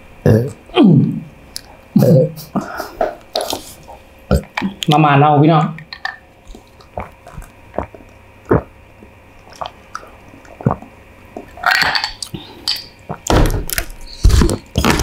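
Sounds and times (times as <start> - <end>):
noisy bursts: 6.3 - 15.0
chewing and mouth sounds: 6.4 - 15.0.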